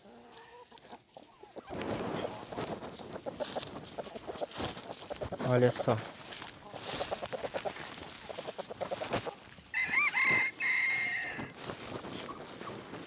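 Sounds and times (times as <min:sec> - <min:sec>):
chickens clucking: 0:00.0 - 0:13.0
rooster crowing: 0:09.6 - 0:11.6.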